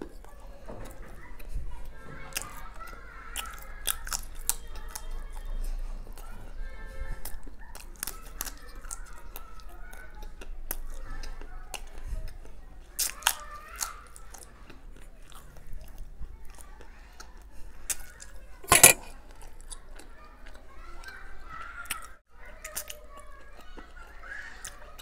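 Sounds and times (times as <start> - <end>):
person chewing: 3.4 - 5.0.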